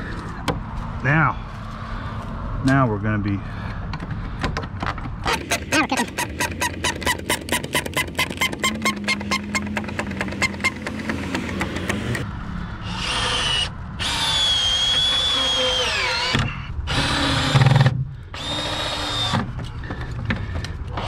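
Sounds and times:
power drill driving screws into wood: 12.9s - 19.5s.

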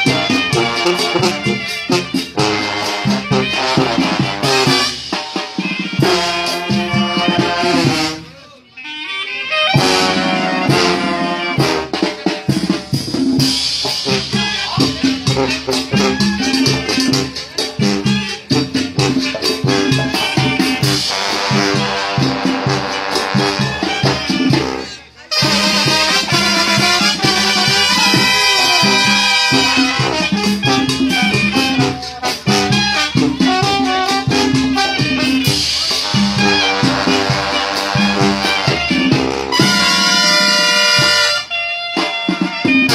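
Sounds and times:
bass drum: 0.0s - 5.0s, 5.9s - 8.2s, 9.8s - 24.8s, 25.4s - 41.4s
brass band playing: 0.0s - 42.9s
sharp percussion hits: 25.4s - 41.4s.

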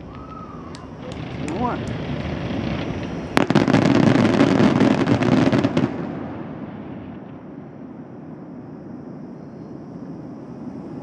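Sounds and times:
fireworks bangs and crackle: 0.0s - 9.2s
fireworks echo: 0.0s - 11.0s.

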